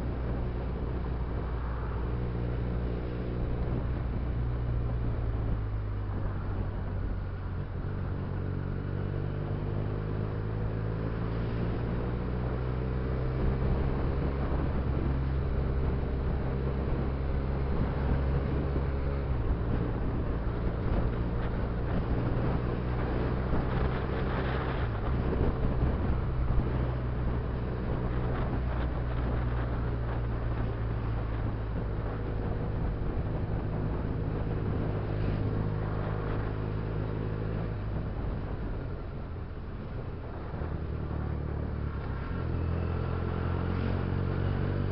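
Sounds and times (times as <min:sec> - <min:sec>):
wind and road noise: 0:00.0 - 0:44.9
motorcycle engine running: 0:11.4 - 0:44.9.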